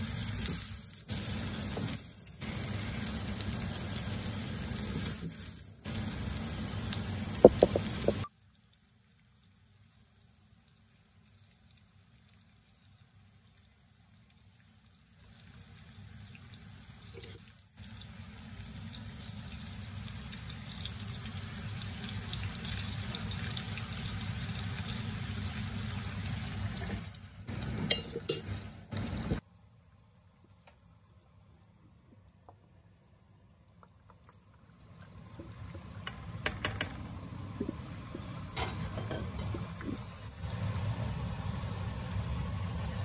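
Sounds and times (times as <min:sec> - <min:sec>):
fish and onions frying in oil: 0:00.0 - 0:29.4, 0:34.3 - 0:43.0
glass lid clinking on pan: 0:27.9 - 0:28.5.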